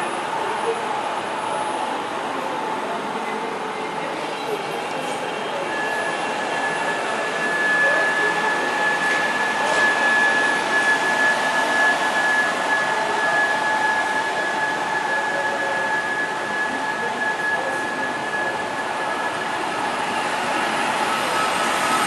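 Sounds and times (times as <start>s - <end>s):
high steady whine: 0.0s - 22.0s
train rushing noise: 17.9s - 22.0s.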